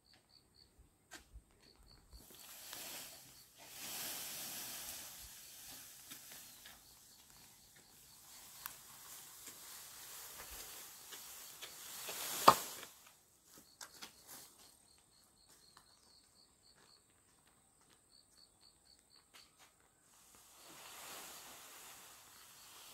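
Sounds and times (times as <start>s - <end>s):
insect chirps: 1.6s - 22.9s
insects whining: 1.9s - 12.7s.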